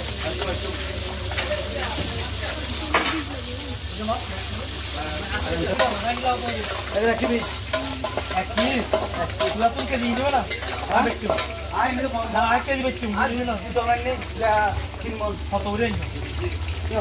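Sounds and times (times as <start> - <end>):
crab sizzling in oil: 0.0 - 17.0
metal spatula scraping a pan: 5.3 - 11.8.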